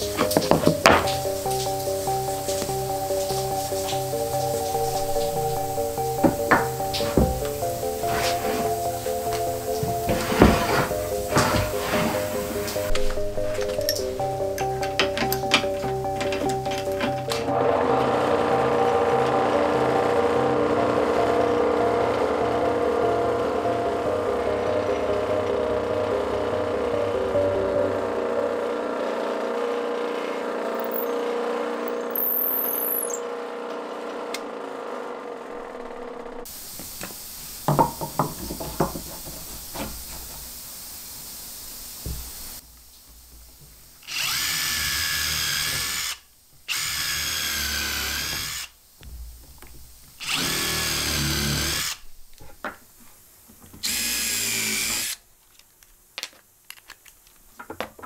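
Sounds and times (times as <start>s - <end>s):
knocks of wood being handled: 0.0s - 1.3s, 6.1s - 7.8s, 36.8s - 40.5s, 57.5s - 58.0s
power drill boring into hardwood: 31.8s - 33.3s, 44.0s - 48.8s, 50.2s - 52.0s, 53.8s - 55.2s.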